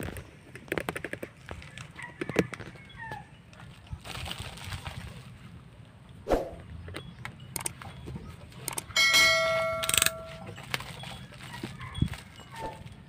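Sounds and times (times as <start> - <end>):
bell-like ding: 9.0 - 10.5
plastic mailer bag rustling: 10.2 - 13.0.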